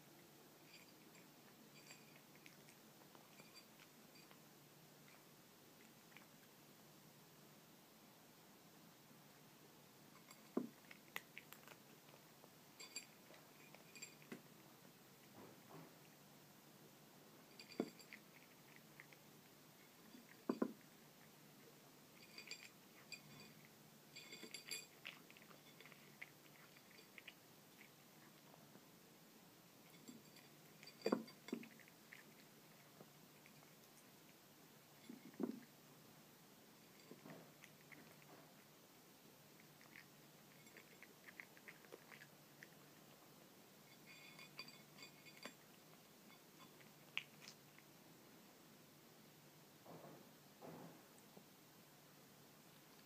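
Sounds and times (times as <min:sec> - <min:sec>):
kitten crunching dry kibble: 0:00.1 - 0:06.7, 0:10.0 - 0:29.0, 0:29.8 - 0:48.5
kibble clinking on plate: 0:00.6 - 0:05.2, 0:10.2 - 0:14.4, 0:17.4 - 0:21.3, 0:22.1 - 0:28.0, 0:29.9 - 0:33.8, 0:36.9 - 0:38.4, 0:43.8 - 0:47.9.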